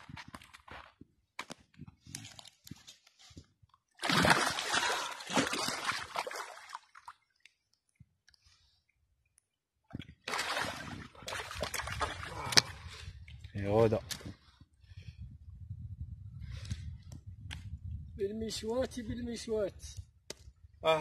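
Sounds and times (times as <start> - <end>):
fish thrashing and splashing: 4.0 - 7.2, 10.2 - 12.9.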